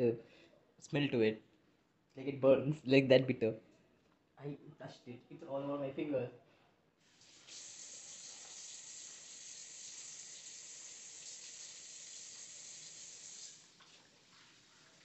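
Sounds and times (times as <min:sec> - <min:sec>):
tap water running: 0:07.0 - 0:15.0.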